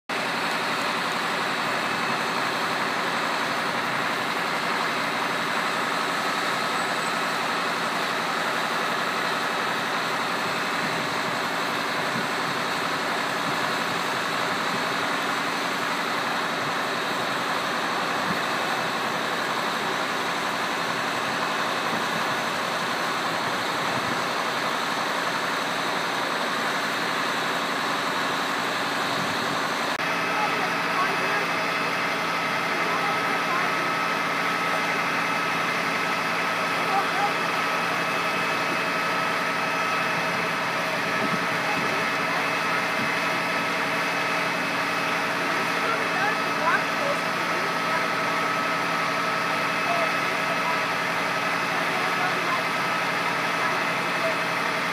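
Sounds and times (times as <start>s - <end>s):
diesel engine running: 0.1s - 54.9s.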